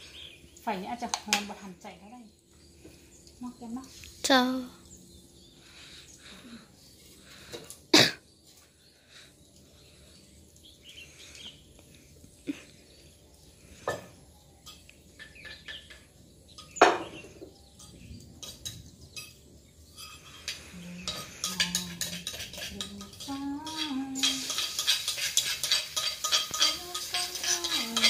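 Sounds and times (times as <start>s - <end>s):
mushrooms sizzling in a wok: 0.0s - 28.0s
cookware and utensils clinking: 13.7s - 28.0s.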